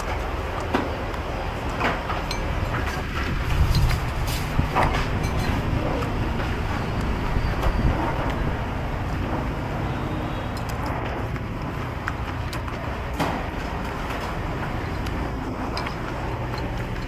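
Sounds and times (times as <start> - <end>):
low rumble of street traffic: 0.0 - 17.0
spoon and chopsticks clinking bowl: 2.2 - 2.6, 5.1 - 5.8.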